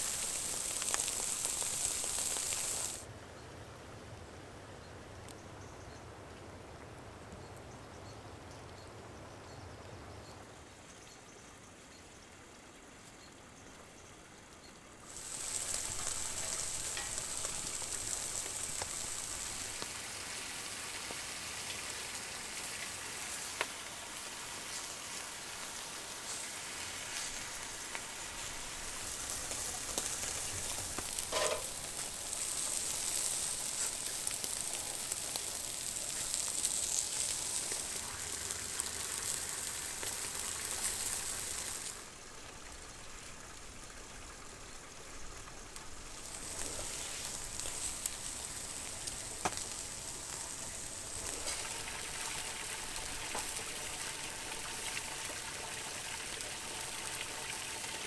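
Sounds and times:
steaks sizzling on grill: 0.0 - 3.1, 15.0 - 42.2, 45.0 - 58.0.

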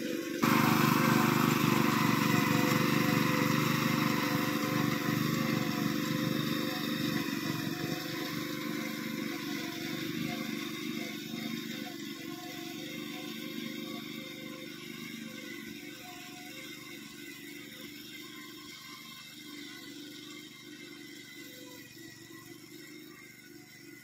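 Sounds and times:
small engine running under load: 0.0 - 24.0.

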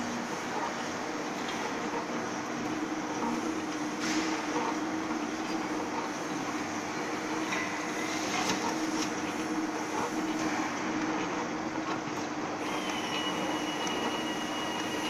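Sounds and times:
machine hum and rumble: 0.0 - 15.0
thin high whine: 12.6 - 15.0.

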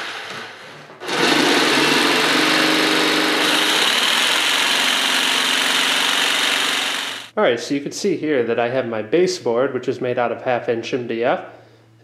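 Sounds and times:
jigsaw cutting: 0.0 - 7.3.

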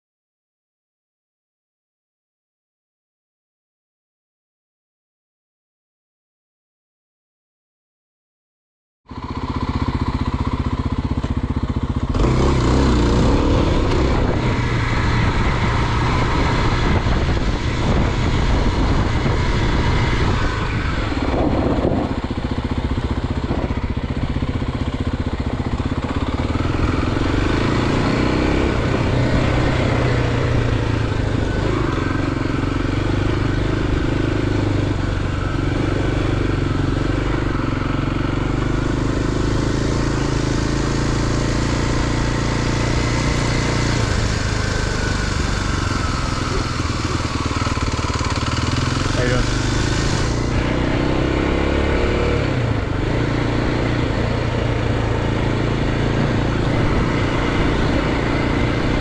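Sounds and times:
motorcycle engine running: 9.1 - 59.0.

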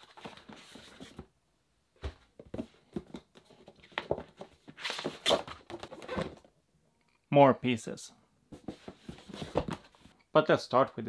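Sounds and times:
cardboard and foam rustling: 8.6 - 10.1.

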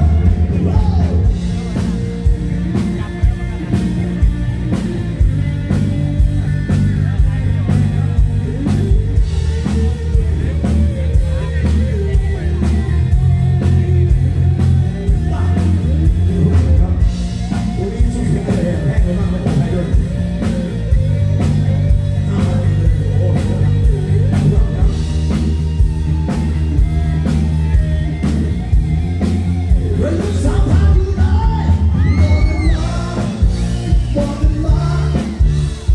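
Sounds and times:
man singing: 0.0 - 3.8, 13.6 - 25.4, 29.7 - 35.9
drums: 0.0 - 35.9
electric bass: 0.0 - 35.9
keyboard: 0.0 - 35.9.

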